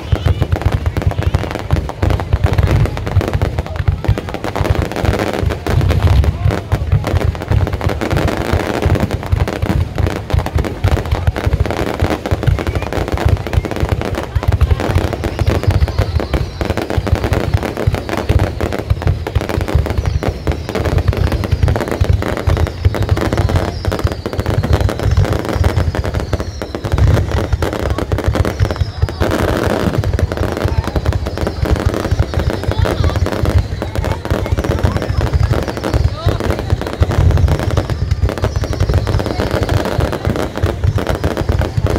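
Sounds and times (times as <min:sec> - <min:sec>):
crackle of bursting fireworks: 0:00.0 - 0:41.9
deep firework booms: 0:00.0 - 0:41.9.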